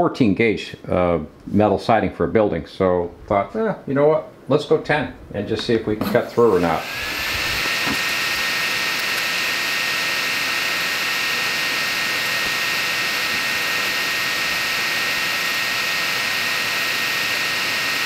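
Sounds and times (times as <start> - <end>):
fan whirring with high whine: 5.1 - 18.0.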